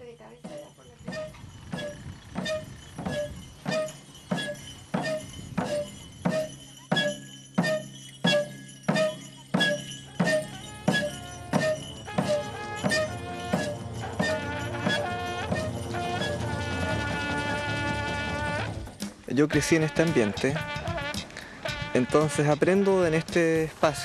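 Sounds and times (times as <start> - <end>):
background music with ringing notes: 0.0 - 24.0.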